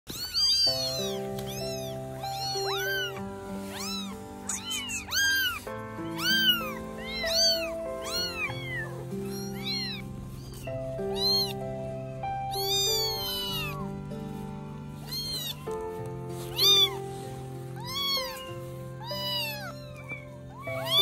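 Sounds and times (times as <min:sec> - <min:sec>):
kittens meowing: 0:00.0 - 0:21.0
music of sustained chords: 0:00.6 - 0:21.0.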